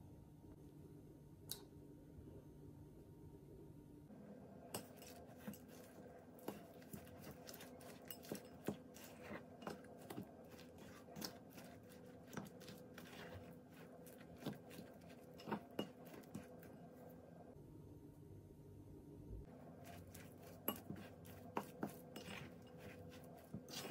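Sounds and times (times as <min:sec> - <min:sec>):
fork clinking and scraping glass bowl: 0:04.7 - 0:16.8, 0:19.8 - 0:23.9.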